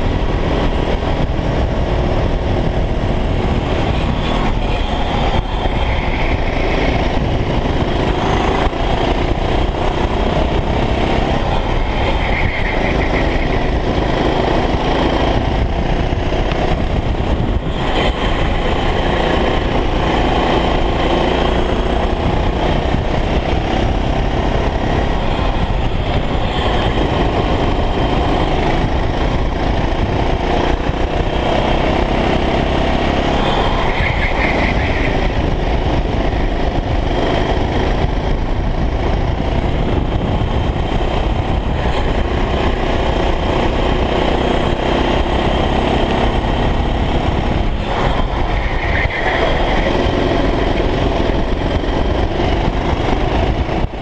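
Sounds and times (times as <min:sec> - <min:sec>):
go-kart engine revving: 0:00.0 - 0:54.0
wind rumble on microphone: 0:00.0 - 0:54.0.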